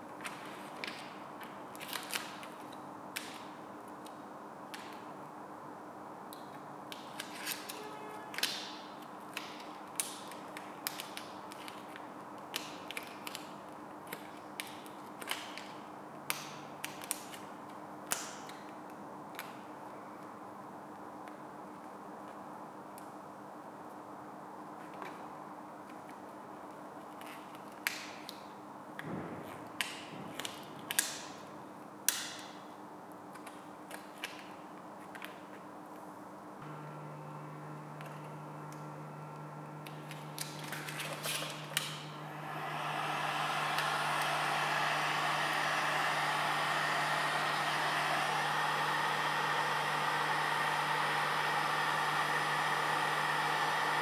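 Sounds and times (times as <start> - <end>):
faint steady hum: 36.6 - 54.0.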